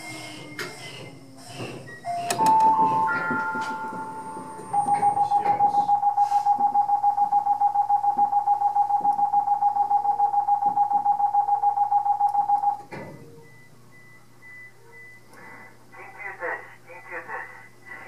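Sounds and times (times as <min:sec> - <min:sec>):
rapid alarm beeping: 0:01.9 - 0:15.8
low hum: 0:02.0 - 0:15.9.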